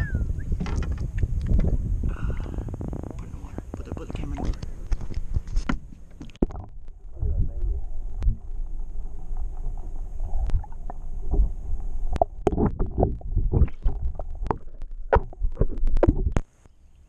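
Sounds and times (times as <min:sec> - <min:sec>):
underwater rumble and gurgling: 0:00.0 - 0:16.5
water knocking and sloshing: 0:00.6 - 0:01.7.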